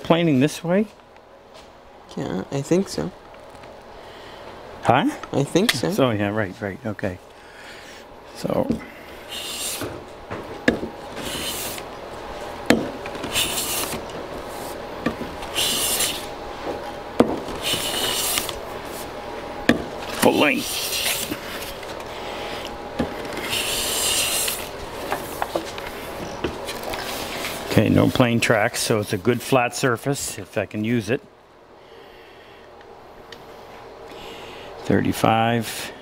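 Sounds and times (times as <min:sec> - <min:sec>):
hand plane shaving wood: 0:11.2 - 0:11.8, 0:15.5 - 0:16.3, 0:23.2 - 0:24.7.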